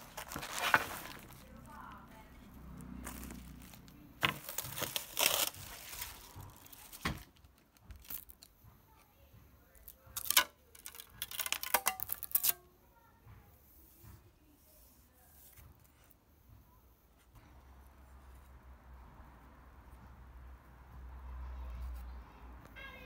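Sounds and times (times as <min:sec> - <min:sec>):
sharp crackles of sheet peeling: 0:00.0 - 0:01.7, 0:03.0 - 0:08.5, 0:10.2 - 0:12.6
plastic film crinkling and tearing: 0:00.0 - 0:02.2, 0:02.8 - 0:08.5, 0:09.8 - 0:12.6.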